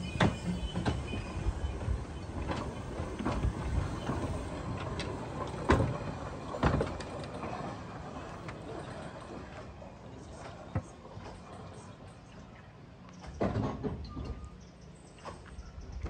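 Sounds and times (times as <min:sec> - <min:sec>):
wheels rumbling on rails: 0:00.0 - 0:16.0
running gear clanks and knocks: 0:02.2 - 0:09.6.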